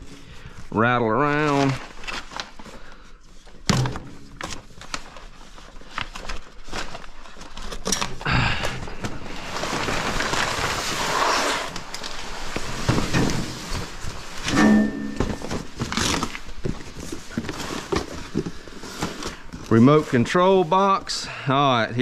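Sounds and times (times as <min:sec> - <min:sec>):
plastic wrapping crinkling: 0:01.2 - 0:14.5, 0:15.2 - 0:20.7.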